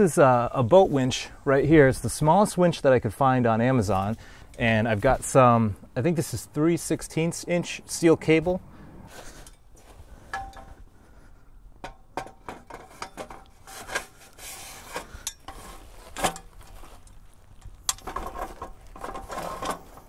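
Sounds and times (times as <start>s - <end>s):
metal parts clinking and knocking: 15.2s - 20.0s.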